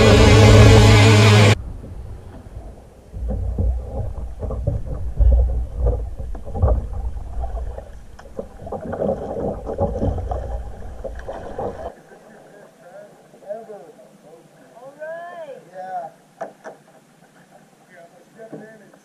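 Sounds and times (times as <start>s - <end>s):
paddle splashes: 1.8s - 14.8s.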